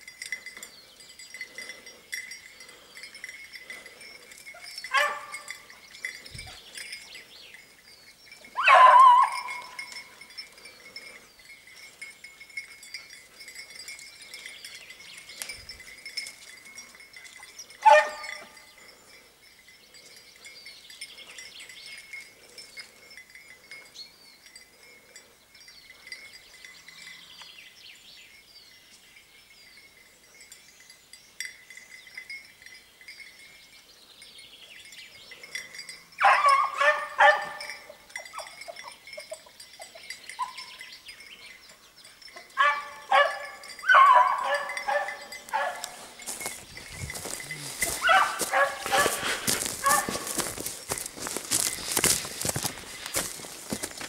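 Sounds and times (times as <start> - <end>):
faint steady high chiming: 0.0 - 54.0
hound baying: 3.7 - 5.9, 8.5 - 11.3, 17.4 - 18.7, 36.2 - 40.8, 42.3 - 54.0.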